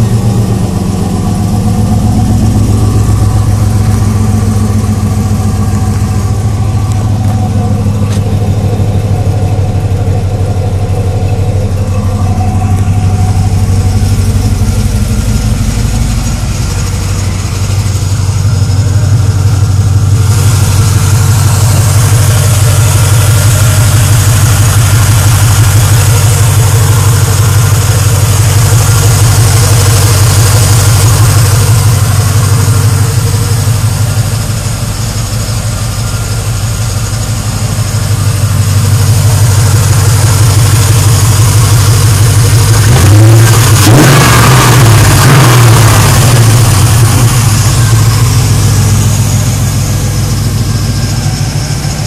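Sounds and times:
car engine idling: 0.0 - 52.0
engine revving: 0.0 - 52.0.

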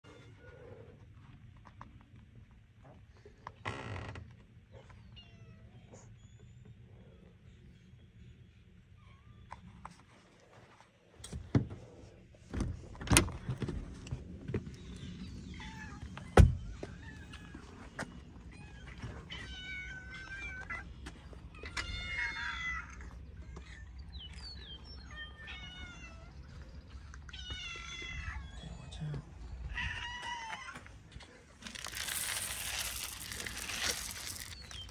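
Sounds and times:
cats meowing: 18.4 - 24.0, 25.0 - 29.0, 29.6 - 30.9.

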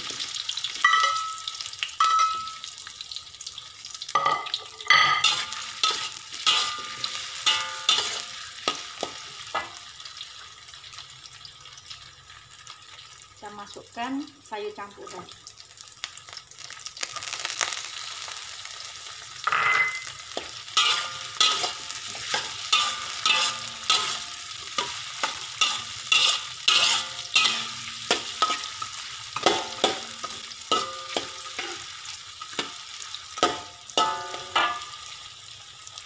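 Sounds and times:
food sizzling: 0.0 - 36.0
metal spatula scraping a wok: 5.1 - 9.3, 19.5 - 35.0.

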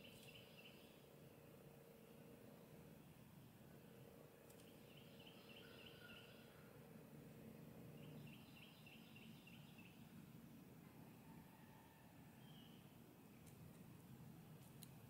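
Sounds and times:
distant birdsong: 0.0 - 15.0
faint click: 4.4 - 4.7.

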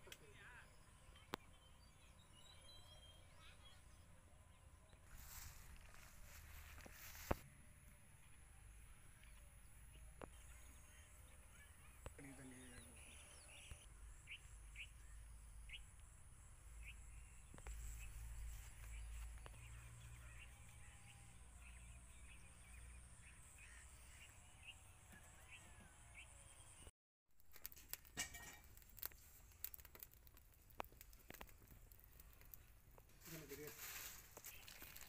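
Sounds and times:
faint bird chirps: 0.1 - 7.4, 8.2 - 26.9
wood fire crackling: 27.4 - 35.0.

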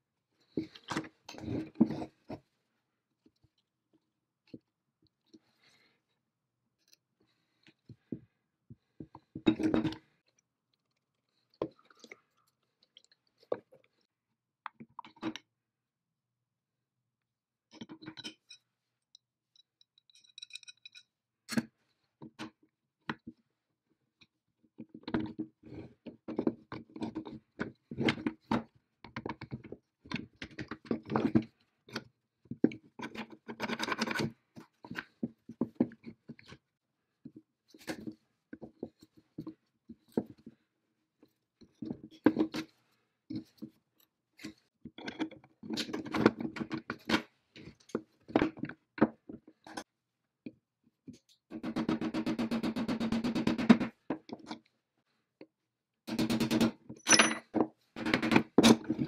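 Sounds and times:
metal parts clinking and scraping: 57.0 - 57.5.

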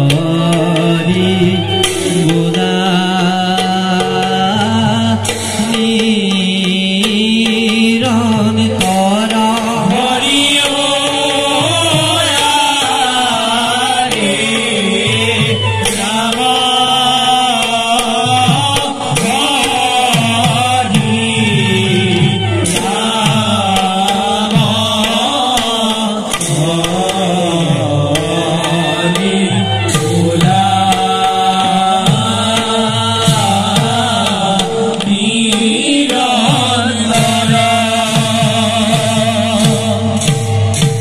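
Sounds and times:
hand drum strokes: 0.0 - 41.0
voices chanting a melody: 9.8 - 40.3.

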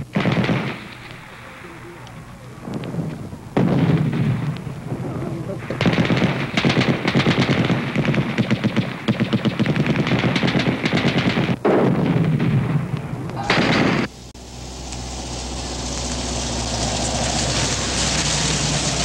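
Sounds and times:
automatic gunfire: 0.0 - 1.6, 5.7 - 12.8, 13.4 - 14.1.

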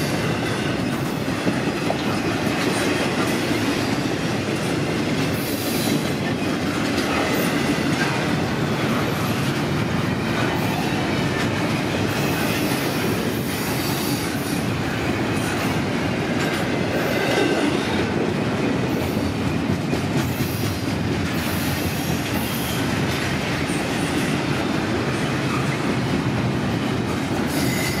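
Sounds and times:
train wheels rumbling on rails: 0.0 - 28.0
high-pitched wheel squeals: 27.5 - 28.0.

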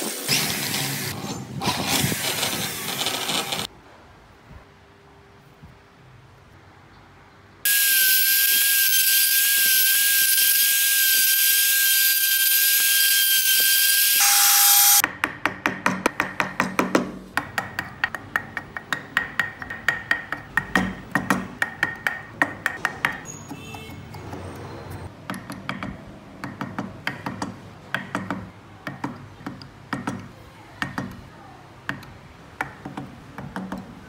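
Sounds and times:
router motor whining: 7.7 - 15.0
chisel tapping wood: 15.0 - 24.4, 25.3 - 31.2, 31.9 - 33.9.

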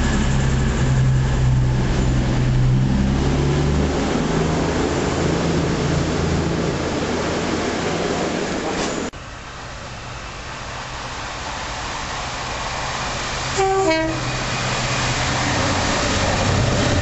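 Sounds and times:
diesel engines running: 0.0 - 7.9
train carriages passing: 0.0 - 17.0.

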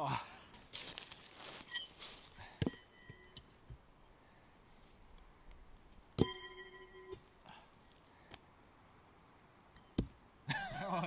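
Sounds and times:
blade ringing: 1.6 - 4.2, 5.9 - 7.3.

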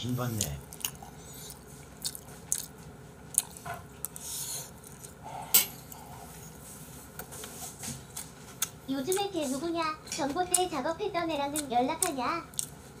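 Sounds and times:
person chewing food: 0.2 - 7.3, 7.9 - 9.3, 10.5 - 10.8, 11.5 - 13.0.

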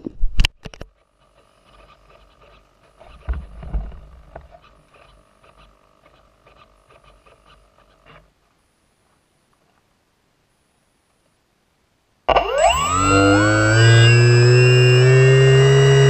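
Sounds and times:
model plane motor whining: 12.3 - 16.0.

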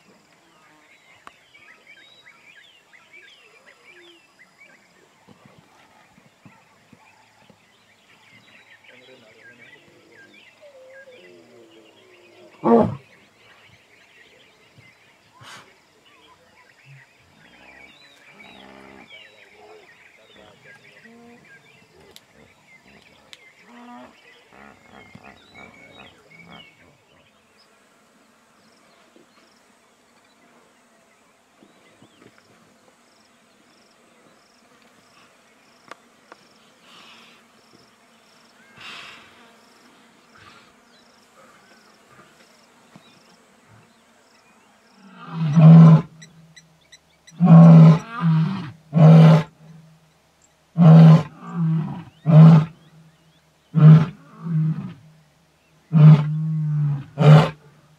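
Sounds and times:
faint insect chirping: 0.0 - 57.9
lion roaring: 47.4 - 49.5, 55.9 - 57.6.

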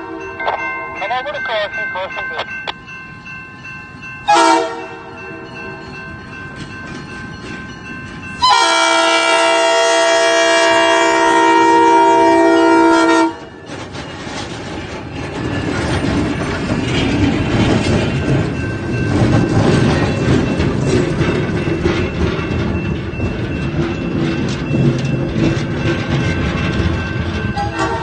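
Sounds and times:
diesel engines of passing train: 0.0 - 28.0
locomotive air horn blast: 4.3 - 5.0, 8.4 - 13.4, 27.6 - 28.0
wheels rolling over rail joints: 13.6 - 28.0.

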